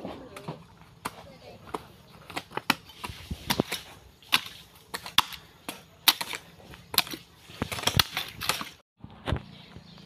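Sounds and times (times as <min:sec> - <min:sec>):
hoe striking hard earth: 0:01.0 - 0:08.8.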